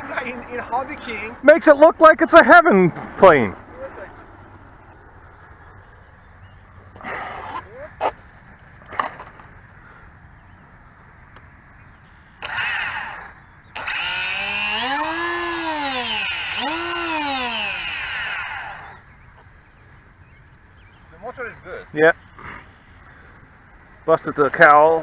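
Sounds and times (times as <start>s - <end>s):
electric motor and propeller whine: 12.1s - 19.5s.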